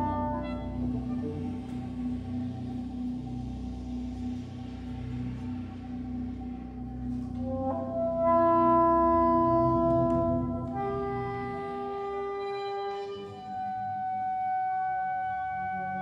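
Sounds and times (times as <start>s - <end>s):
soprano saxophone held notes: 0.0s - 2.8s, 7.2s - 16.0s
low electronic drone: 0.0s - 16.0s.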